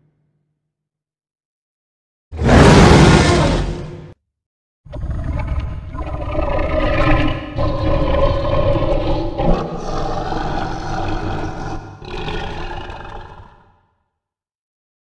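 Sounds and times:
monster roars: 2.4 - 3.9, 4.9 - 13.9.

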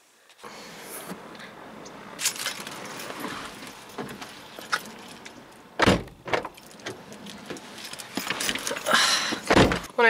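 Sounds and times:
car keys jangling: 2.0 - 9.9
loud thump: 5.8 - 6.5, 9.5 - 9.9.

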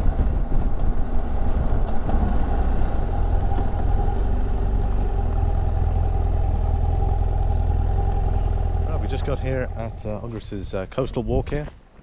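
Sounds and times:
motorcycle engine at low revs: 0.1 - 10.6.

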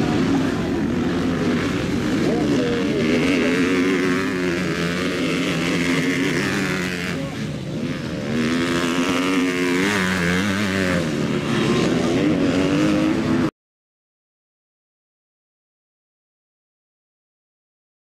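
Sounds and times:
motocross bike engines revving: 0.0 - 13.5.

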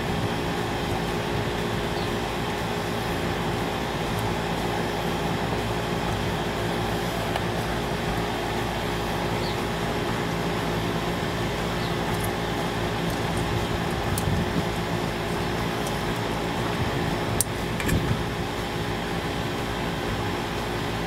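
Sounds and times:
machine humming: 0.0 - 21.0
sharp click: 17.4 - 18.1.

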